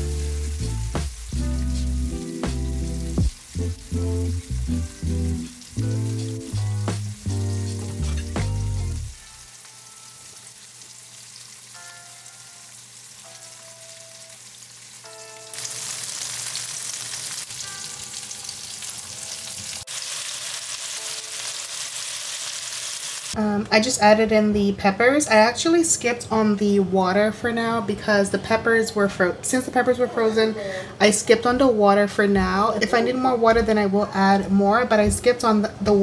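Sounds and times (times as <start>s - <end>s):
music with heavy beat: 0.0s - 9.2s
chicken sizzling in oil: 0.0s - 23.4s.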